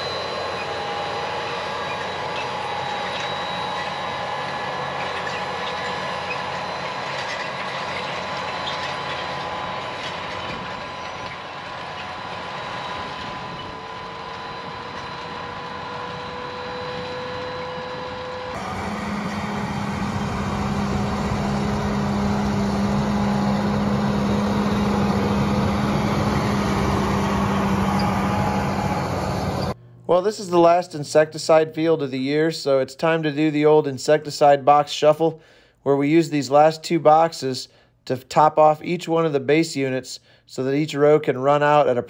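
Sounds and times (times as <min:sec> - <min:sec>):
tractor engine running under load: 0:00.0 - 0:29.8
steady whining tones: 0:00.0 - 0:30.7.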